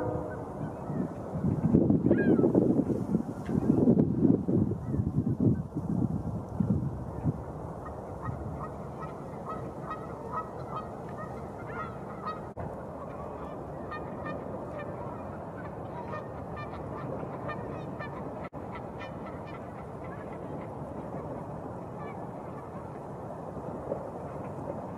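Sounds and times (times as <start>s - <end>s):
geese honking: 0.0s - 1.2s, 8.2s - 23.0s
wind rushing: 0.0s - 10.7s.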